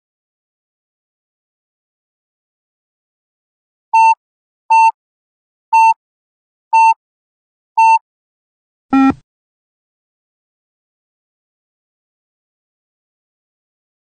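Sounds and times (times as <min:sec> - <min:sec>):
short high electronic beeps: 0:09.0 - 0:09.2.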